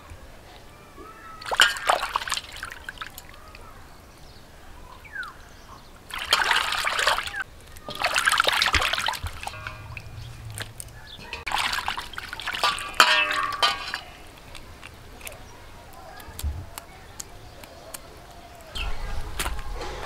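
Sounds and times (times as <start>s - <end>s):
water splashing in steel basin: 1.3s - 3.6s, 6.0s - 15.3s.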